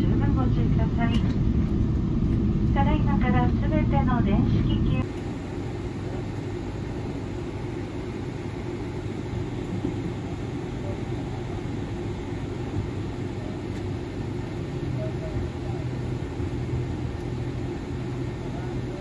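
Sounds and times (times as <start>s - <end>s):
airliner cabin hum: 0.0s - 19.0s.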